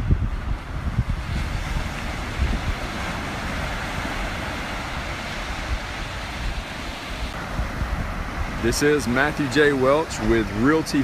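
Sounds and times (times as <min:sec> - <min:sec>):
surf breaking on beach: 0:00.0 - 0:11.0
wind buffeting microphone: 0:00.0 - 0:11.0.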